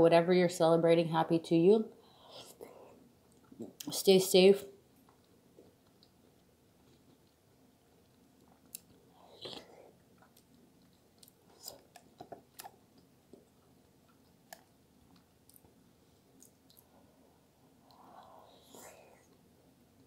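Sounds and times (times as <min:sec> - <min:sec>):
chewing and wet mouth sounds: 0:03.2 - 0:04.0, 0:04.9 - 0:17.1.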